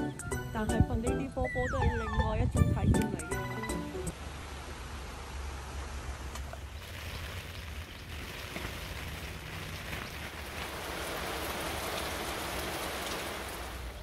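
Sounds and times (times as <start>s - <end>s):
heavy rain pouring: 4.1s - 14.0s.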